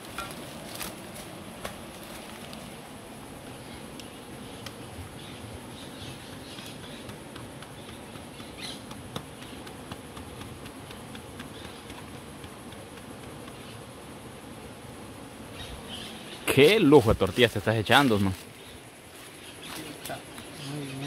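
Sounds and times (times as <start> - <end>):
insects droning: 0.0 - 21.0
hands tapping dough: 6.6 - 13.6.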